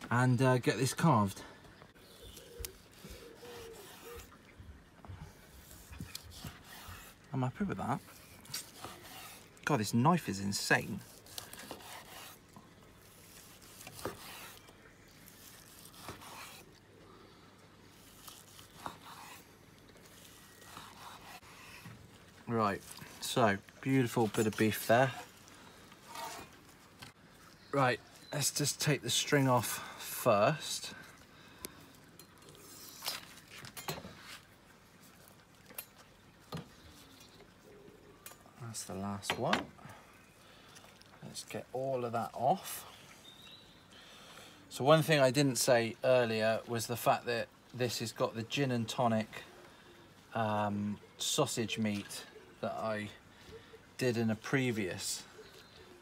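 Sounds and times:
knife slicing through meat: 2.7s - 4.3s, 5.6s - 7.2s, 8.0s - 9.6s, 10.9s - 12.4s, 13.0s - 14.6s, 15.2s - 16.7s, 18.0s - 19.5s, 20.1s - 21.8s.

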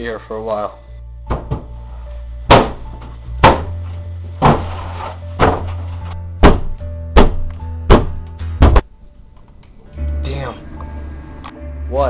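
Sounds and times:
heavy thuds: 2.5s - 4.8s, 5.4s - 8.9s
low held drone: 10.5s - 12.0s.

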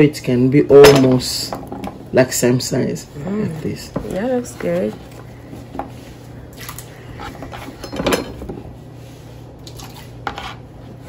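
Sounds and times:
utensils and dishes clinking: 7.2s - 8.6s.

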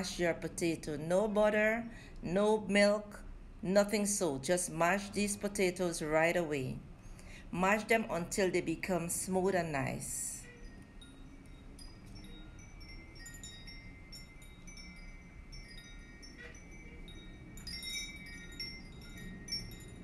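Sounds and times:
soft tinkling chime-like music: 10.4s - 20.0s.

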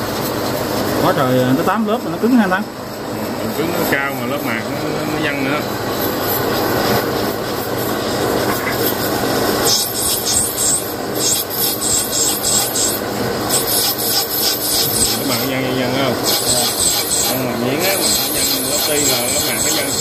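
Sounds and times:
low machine hum: 0.0s - 20.0s
scraping strokes on metal: 8.5s - 20.0s.

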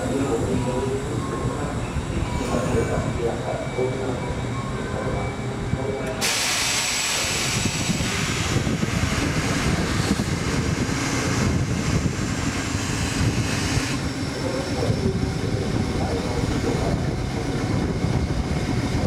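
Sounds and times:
railcar low rumble: 0.0s - 19.0s.

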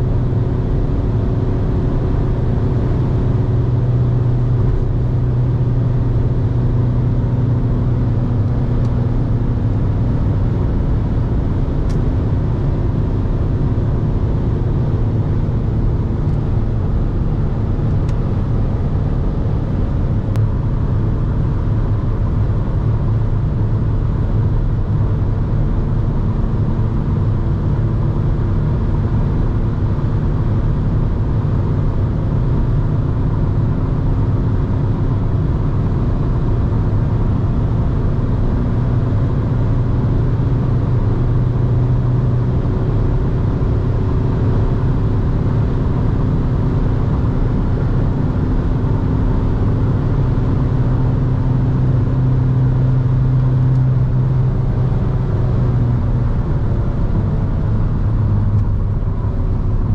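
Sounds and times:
diesel engine drone: 0.0s - 59.9s
road and wind noise: 0.0s - 59.9s.

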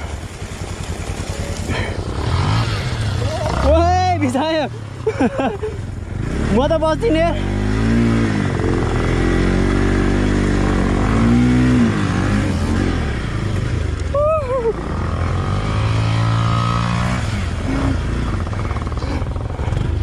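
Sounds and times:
motorcycle engine revving: 0.0s - 20.0s
person calling out: 14.1s - 14.8s.

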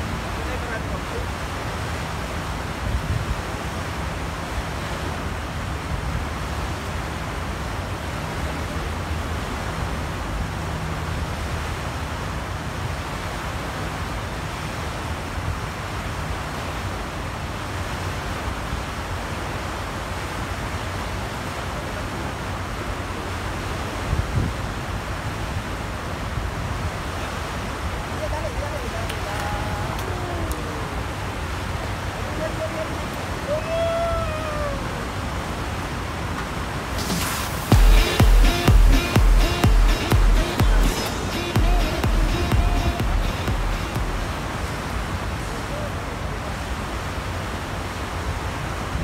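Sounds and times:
wind rumbling on microphone: 0.0s - 21.5s, 22.9s - 39.8s.

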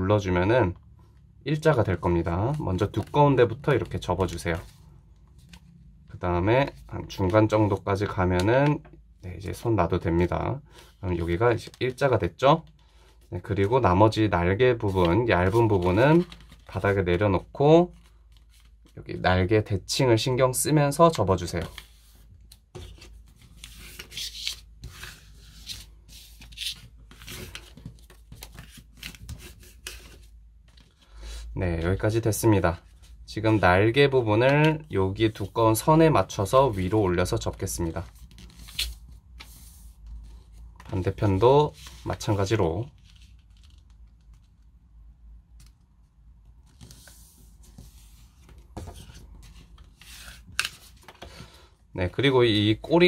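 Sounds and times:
paper folding and rustling: 14.7s - 17.2s, 17.8s - 19.1s, 21.1s - 31.2s, 32.7s - 44.6s, 46.6s - 51.6s.

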